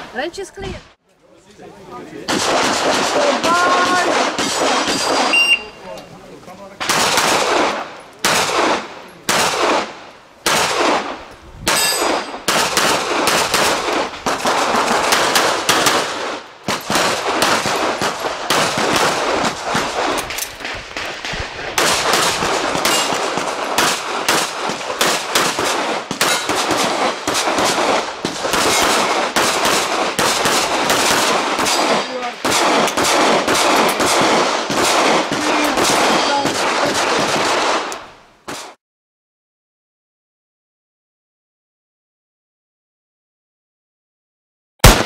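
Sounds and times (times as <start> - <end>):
rapid handgun fire: 2.3 - 5.6, 6.8 - 37.9.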